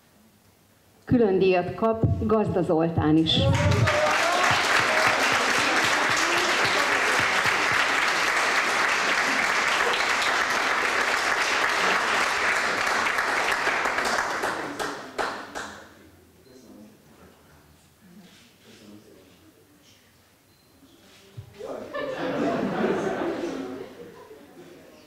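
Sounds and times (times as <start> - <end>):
audience applauding: 3.4 - 15.8.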